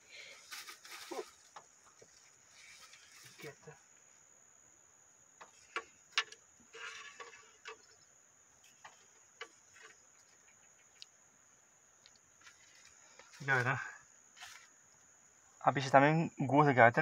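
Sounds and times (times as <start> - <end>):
rustling: 0.0 - 4.1, 5.4 - 11.2, 12.0 - 15.0.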